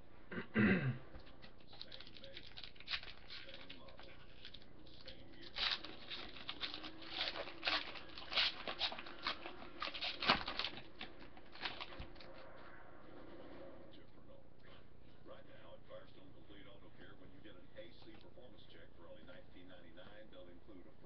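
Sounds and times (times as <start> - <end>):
cards rustling and flicking: 1.2 - 12.4.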